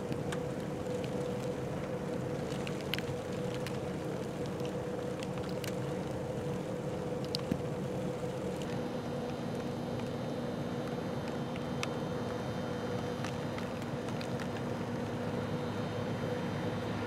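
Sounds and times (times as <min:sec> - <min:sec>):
vehicle engine hum: 0:00.0 - 0:17.0
faint ticks: 0:00.1 - 0:10.2.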